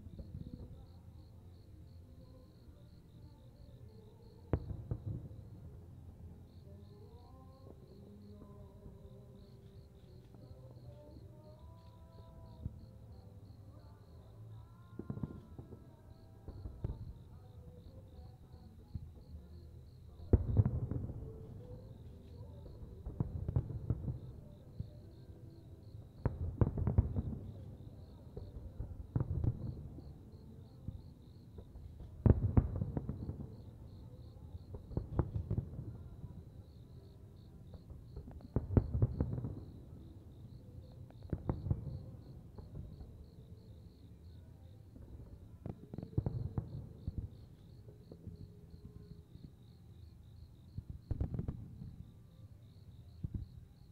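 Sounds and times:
firework shells booming and crackling: 4.5s - 5.9s, 14.9s - 49.6s, 50.2s - 52.2s.

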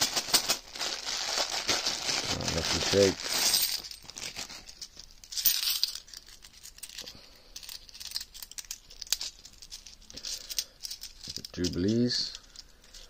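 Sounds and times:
coins clinking: 0.0s - 0.7s, 2.7s - 13.0s
plastic bag crinkling: 0.0s - 5.2s.

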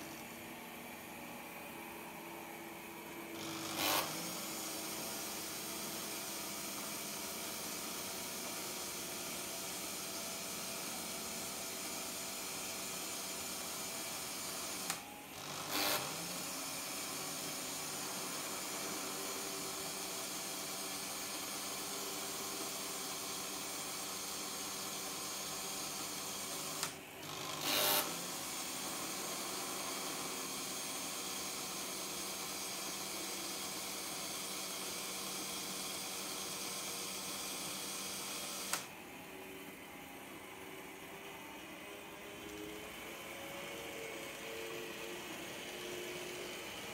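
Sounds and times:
small electric motor whirring: 3.3s - 8.4s, 14.5s - 22.0s, 23.6s - 38.8s.

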